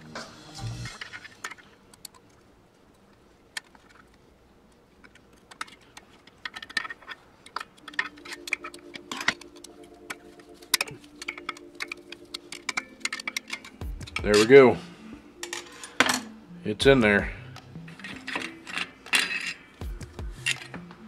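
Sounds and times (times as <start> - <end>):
small metallic clicks and clinks: 5.0 - 14.5
steady low tones: 8.4 - 18.1.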